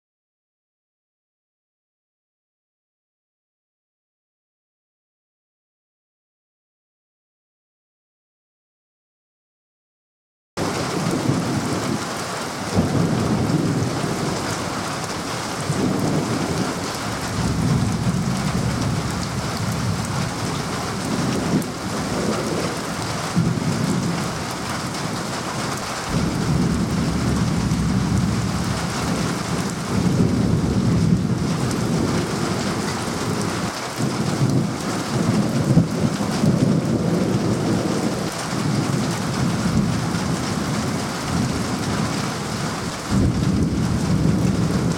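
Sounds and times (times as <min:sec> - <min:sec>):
rolling thunder: 0:10.6 - 0:44.9
steady rain: 0:10.6 - 0:44.9.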